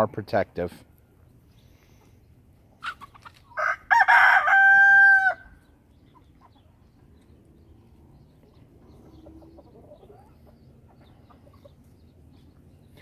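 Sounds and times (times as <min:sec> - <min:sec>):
rooster crowing: 0:03.6 - 0:05.6.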